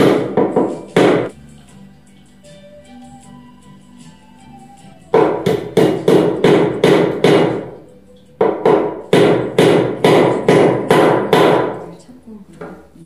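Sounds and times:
hammer knocking on wood: 0.0s - 1.3s, 5.2s - 7.8s, 8.4s - 11.9s.

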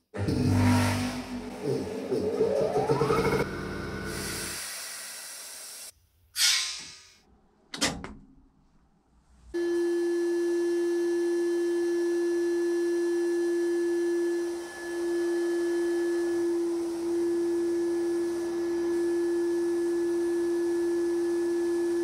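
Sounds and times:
compressed air hissing: 4.1s - 7.0s.

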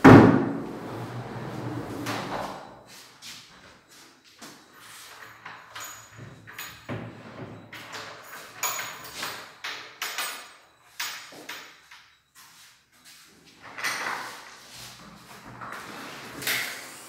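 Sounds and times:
wooden sliding doors rolling: 0.0s - 2.7s, 13.6s - 16.8s.

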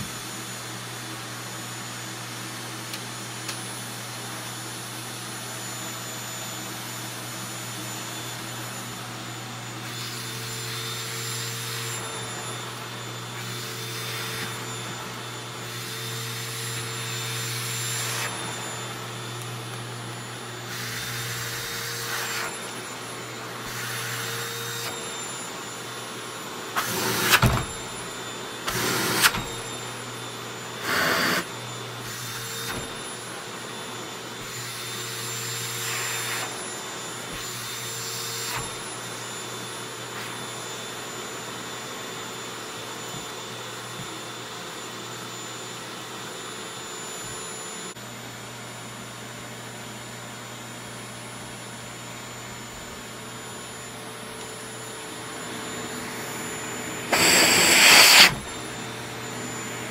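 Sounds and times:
vacuum cleaner running: 0.0s - 59.9s
vacuum suction rushing: 57.0s - 58.7s.

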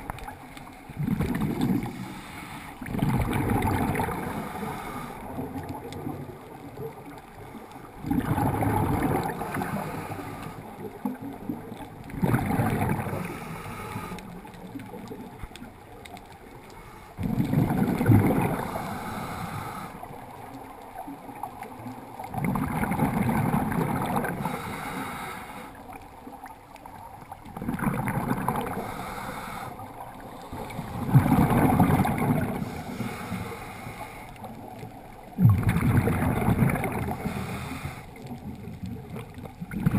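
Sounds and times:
underwater regulator exhalation bubbles: 0.9s - 2.0s, 2.8s - 6.4s, 8.0s - 10.0s, 11.0s - 13.4s, 17.2s - 19.2s, 22.3s - 24.6s, 27.5s - 29.0s, 30.5s - 33.2s, 35.3s - 37.7s, 38.6s - 39.9s.

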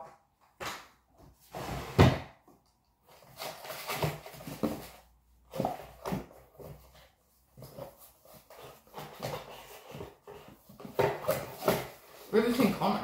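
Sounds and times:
packaging rustling and scraping: 3.1s - 12.8s.

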